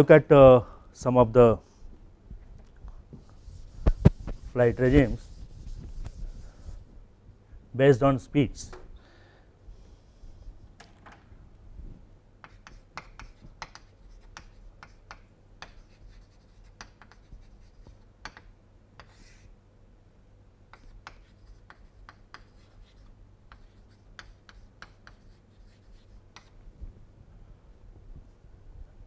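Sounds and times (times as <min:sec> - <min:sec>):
steady low hum: 0:00.0 - 0:29.0
chalk writing on chalkboard: 0:03.2 - 0:06.8, 0:12.4 - 0:19.5, 0:20.7 - 0:26.6.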